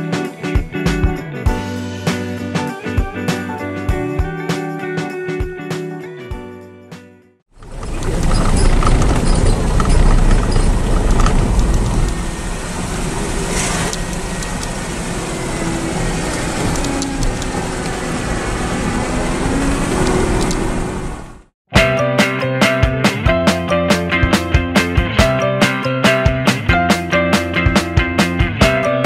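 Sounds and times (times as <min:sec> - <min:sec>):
car engine and road noise: 0:07.5 - 0:21.6.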